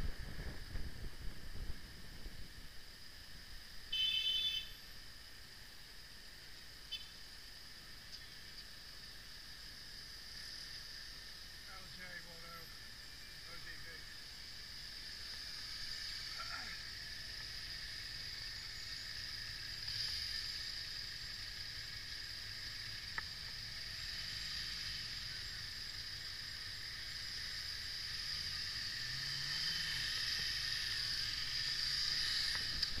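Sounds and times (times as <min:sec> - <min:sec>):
motorcycle engine rumble: 0:00.0 - 0:05.1, 0:30.1 - 0:33.0
wind and road noise hiss: 0:00.0 - 0:33.0.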